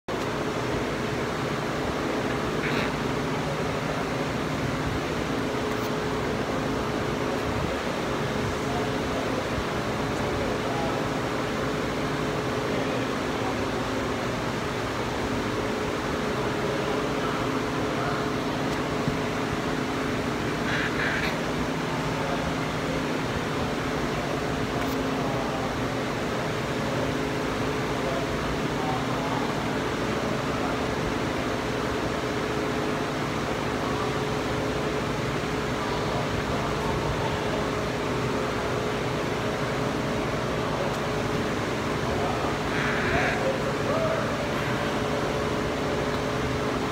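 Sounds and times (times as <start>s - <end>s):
ventilation hum and hiss: 0.1s - 46.9s.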